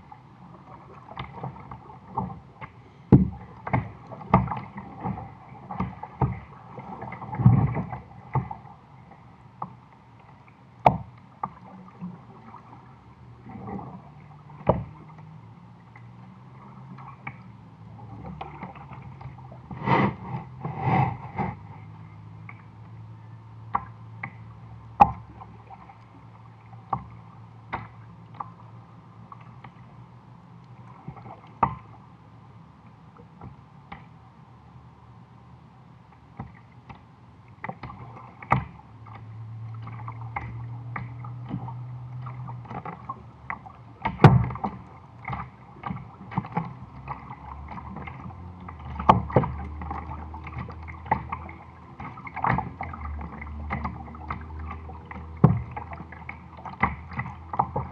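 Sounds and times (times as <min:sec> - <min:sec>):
water lapping: 0:00.0 - 0:23.1, 0:23.7 - 0:32.2, 0:36.3 - 0:57.9
steady low hum: 0:00.0 - 0:57.9
knocks on kayak hull: 0:03.1 - 0:04.6, 0:55.4 - 0:55.8.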